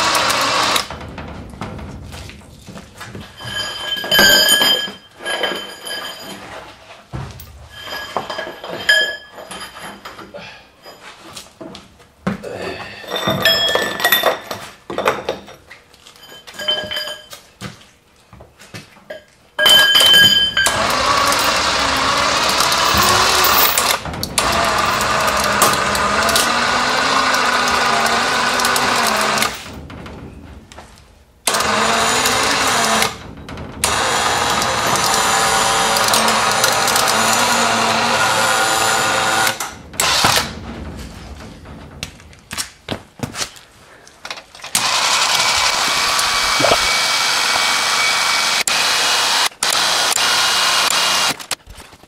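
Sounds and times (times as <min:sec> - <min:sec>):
winch motor whining: 0:00.0 - 0:00.9, 0:20.0 - 0:29.7, 0:31.5 - 0:33.2, 0:33.8 - 0:40.6, 0:44.7 - 0:51.4
metallic clinks and knocks: 0:00.9 - 0:11.2, 0:13.1 - 0:17.6, 0:19.1 - 0:26.6.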